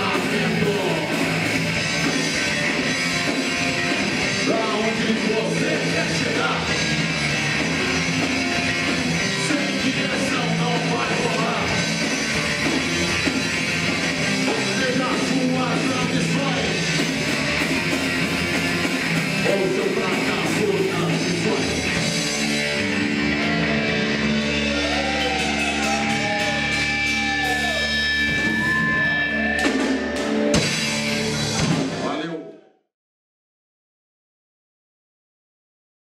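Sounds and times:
person singing: 0.0 - 1.3, 19.4 - 22.0
bass guitar: 0.0 - 32.2
distorted electric guitar: 0.0 - 32.2
drum kit: 0.0 - 32.2.

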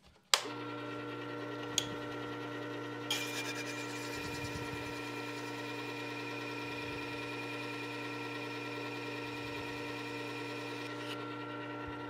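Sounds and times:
sharpener grinding steel chisel: 3.1 - 6.0.

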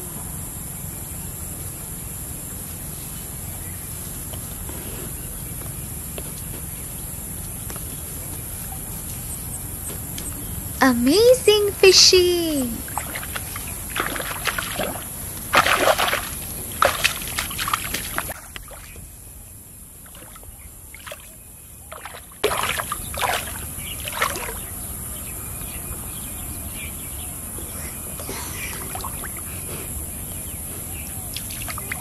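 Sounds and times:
muddy water splashing: 12.8 - 19.0, 20.0 - 24.8, 31.4 - 32.0
fish thrashing at surface: 12.9 - 18.4.

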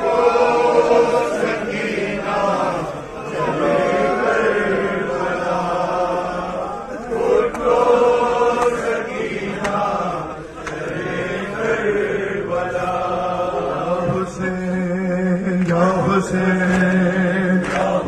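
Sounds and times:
man chanting into a microphone: 13.6 - 18.0.

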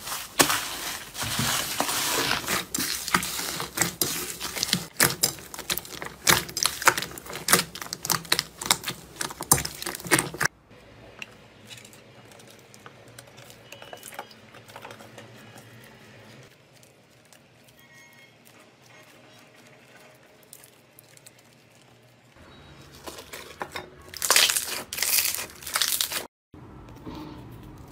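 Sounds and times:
slime crackling and popping: 0.4 - 10.5, 18.4 - 22.3, 24.1 - 26.3.

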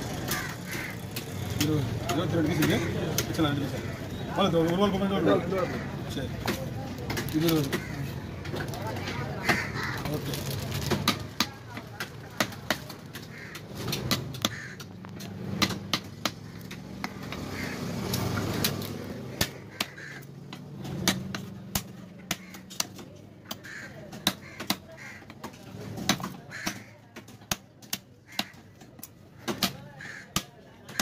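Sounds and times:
knife chopping on wooden block: 10.9 - 17.4, 19.4 - 24.9.

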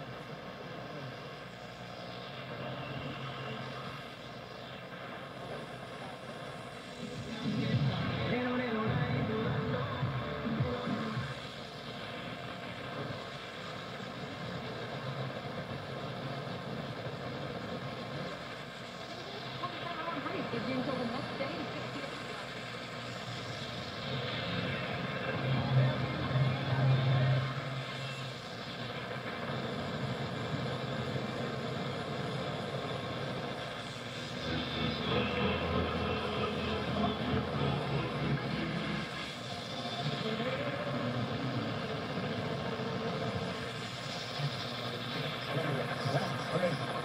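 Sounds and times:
radio static: 0.0 - 47.0.

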